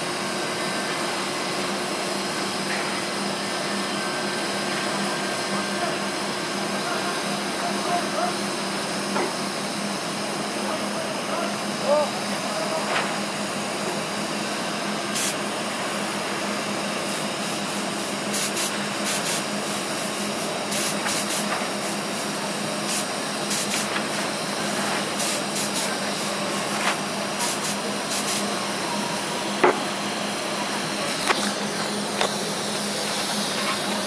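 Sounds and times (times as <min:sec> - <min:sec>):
welding arc hissing and crackling: 0:15.1 - 0:15.4, 0:17.0 - 0:28.6.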